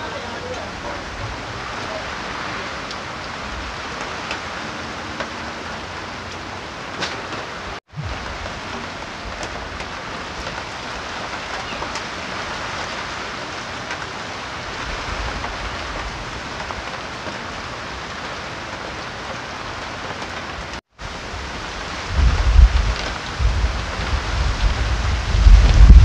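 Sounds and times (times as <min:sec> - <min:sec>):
wind gusts buffeting microphone: 0:00.0 - 0:13.7, 0:20.4 - 0:26.0
heavy rain and wind hissing: 0:00.0 - 0:26.0.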